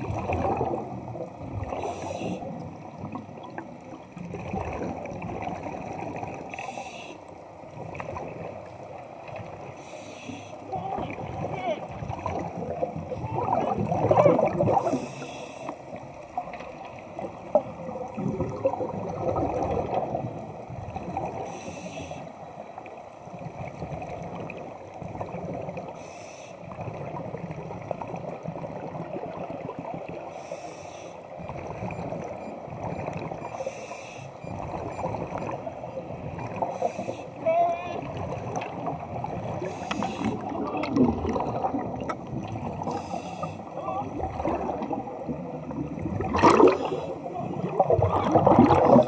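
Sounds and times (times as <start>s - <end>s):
bubbling exhaled air: 18.0s - 20.2s, 39.4s - 43.6s, 44.2s - 49.0s.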